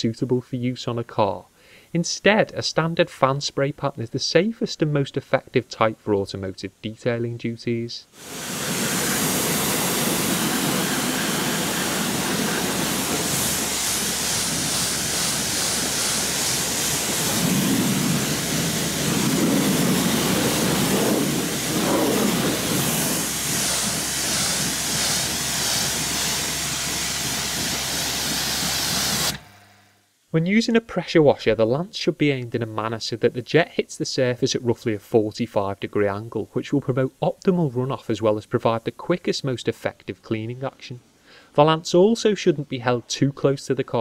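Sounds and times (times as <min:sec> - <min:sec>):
pressure washer spray hissing: 0:08.1 - 0:29.6.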